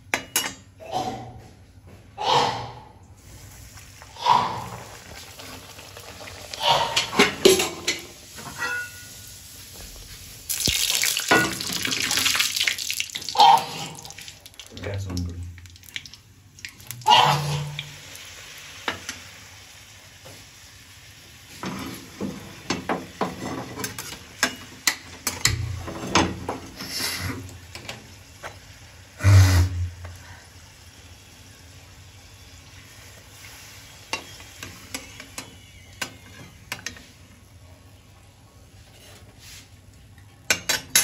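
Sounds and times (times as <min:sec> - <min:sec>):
bread sizzling in hot oil: 0:03.2 - 0:13.3, 0:17.8 - 0:37.5.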